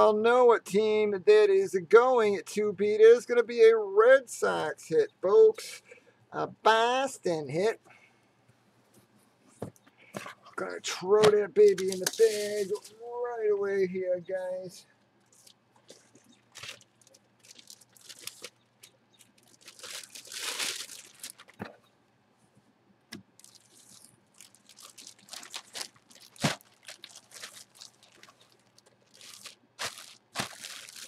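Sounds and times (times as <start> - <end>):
plastic bag crinkling: 11.6 - 12.9, 15.2 - 21.8, 23.3 - 31.0.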